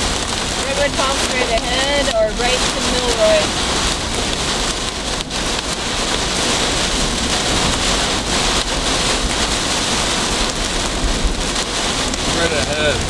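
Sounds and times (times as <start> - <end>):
heavy rain pelting a car: 0.0 - 13.0.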